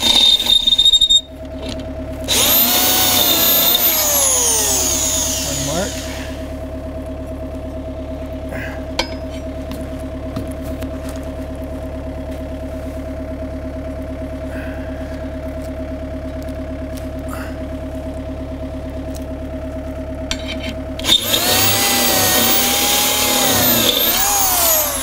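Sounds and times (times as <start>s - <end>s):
electric drill drilling metal: 0.0s - 6.4s, 20.3s - 25.0s
steady engine-like hum: 0.0s - 25.0s.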